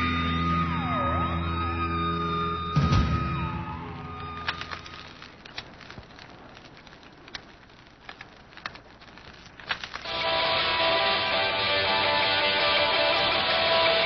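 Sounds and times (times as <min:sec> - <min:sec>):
music: 0:00.0 - 0:04.9, 0:10.1 - 0:14.0
crackling hiss: 0:04.0 - 0:14.0
sharp clicks: 0:04.4 - 0:10.2.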